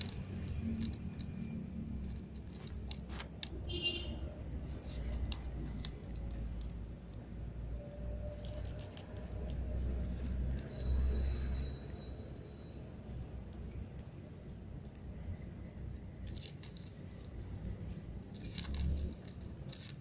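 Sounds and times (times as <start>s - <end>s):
cat crunching dry kibble: 0.0s - 11.6s, 13.1s - 20.0s.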